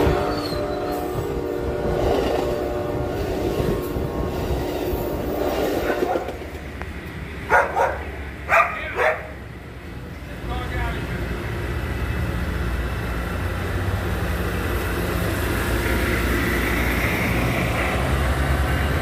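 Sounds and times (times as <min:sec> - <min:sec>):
train horn: 0:00.0 - 0:06.2
train running: 0:00.0 - 0:19.0
dog barking: 0:07.5 - 0:09.4.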